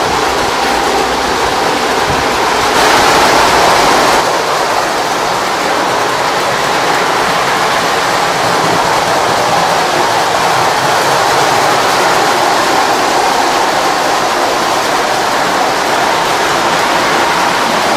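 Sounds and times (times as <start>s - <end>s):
toy train rumbling on metal rails: 0.0s - 17.9s.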